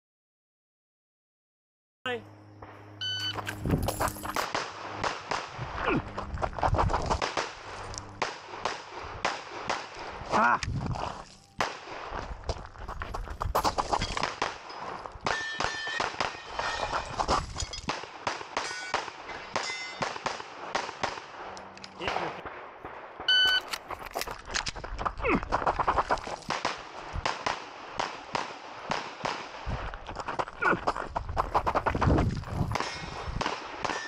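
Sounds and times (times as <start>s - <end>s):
pistol shots: 4.4s - 5.8s, 7.1s - 10.3s, 15.2s - 17.0s, 17.9s - 23.8s, 26.5s - 29.7s, 32.8s - 34.0s
short metallic rings: 14.7s - 17.9s, 18.6s - 20.0s.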